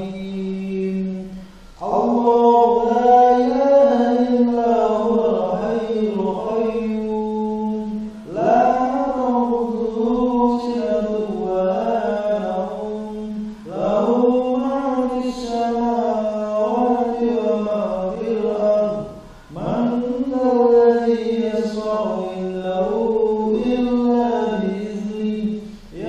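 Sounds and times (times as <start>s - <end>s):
person chanting: 0.0s - 26.0s
person breathing: 1.3s - 1.8s, 19.2s - 19.6s.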